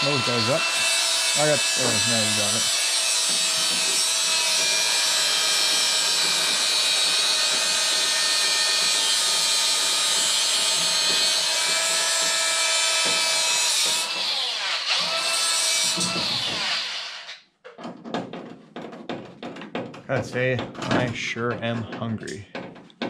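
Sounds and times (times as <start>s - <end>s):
grinder cutting bolt: 0.0s - 17.5s.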